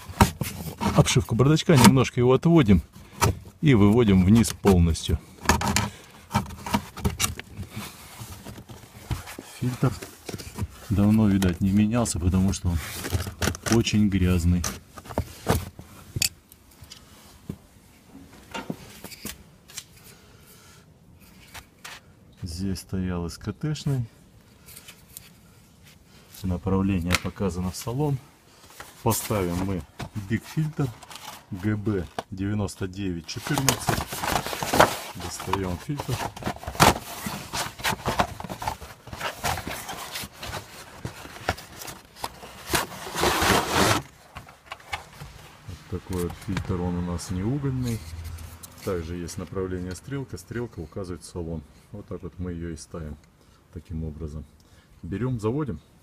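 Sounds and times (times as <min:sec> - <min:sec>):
rustling scrape: 0:27.7 - 0:32.2, 0:33.3 - 0:46.6, 0:47.8 - 0:49.2
cardboard scrapes and knocks: 0:33.4 - 0:44.1.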